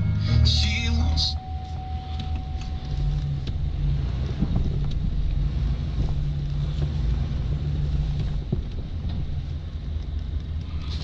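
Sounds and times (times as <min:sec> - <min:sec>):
diesel engine rumbling: 0:00.0 - 0:11.0.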